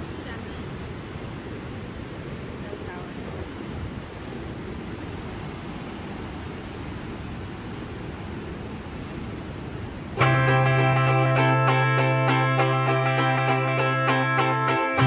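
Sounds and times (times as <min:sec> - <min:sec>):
guitar music: 0:10.2 - 0:15.0.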